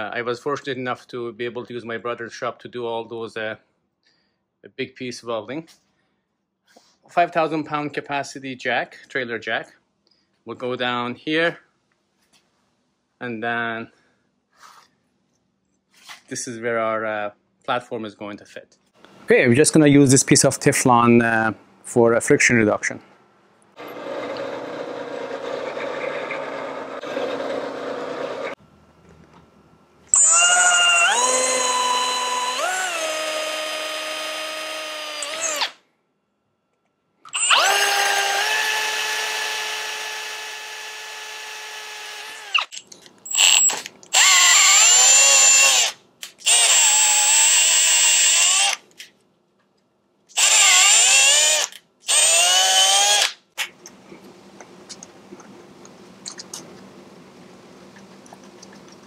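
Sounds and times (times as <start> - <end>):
cordless drill drilling steel: 23.8 - 28.6, 30.1 - 35.8, 37.3 - 48.8, 50.3 - 53.4
drill press boring into plastic: 23.8 - 28.6, 30.2 - 35.8, 37.3 - 42.7, 43.3 - 48.8, 50.4 - 53.3.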